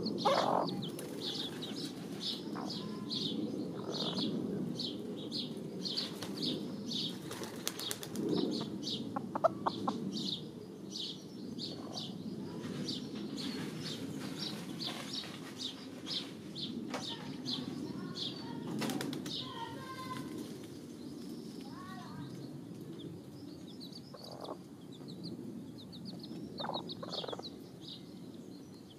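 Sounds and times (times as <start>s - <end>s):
feathers rustling and wings shaking: 6.0s - 8.5s, 12.5s - 21.9s
scratching in dirt: 12.4s - 18.2s.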